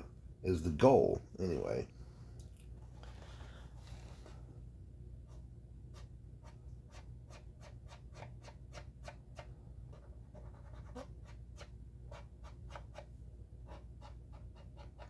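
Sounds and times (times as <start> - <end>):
faint steady low hum: 0.0 - 15.0
cotton swab scratching plastic: 5.3 - 15.0.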